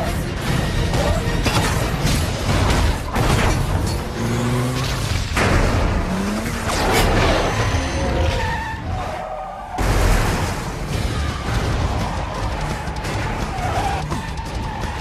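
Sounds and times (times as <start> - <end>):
car engine running hard: 0.0 - 8.2
tyres skidding: 0.2 - 15.0.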